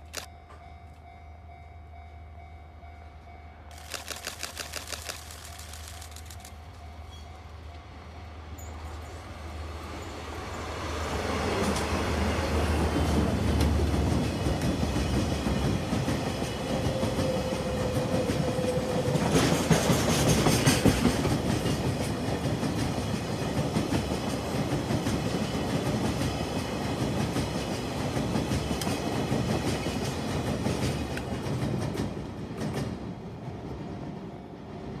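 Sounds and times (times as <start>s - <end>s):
diesel locomotive drone: 0.0s - 35.0s
train wheels clacking over rail joints: 12.8s - 33.0s.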